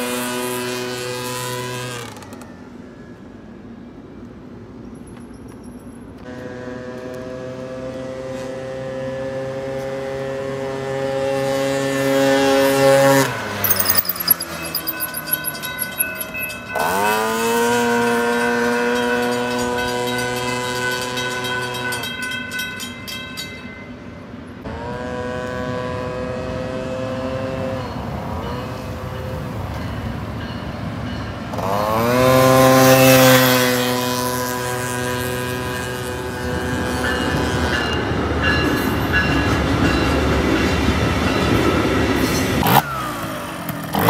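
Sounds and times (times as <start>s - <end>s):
train rumble and rail clatter: 0.0s - 44.0s
train horn blasts: 6.3s - 13.2s, 24.6s - 29.7s, 31.5s - 38.0s.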